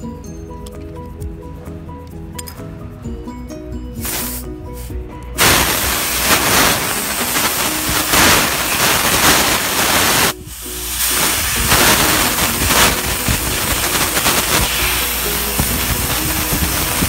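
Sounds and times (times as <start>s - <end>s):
faint background music: 0.0s - 17.0s
loud rushing hiss: 4.0s - 17.0s.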